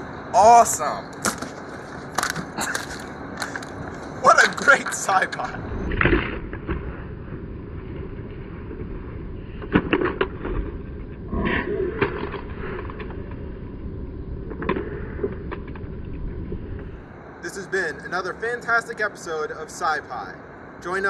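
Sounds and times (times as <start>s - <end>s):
outdoor background noise: 0.0s - 21.0s
voice-like sounds: 11.3s - 12.2s.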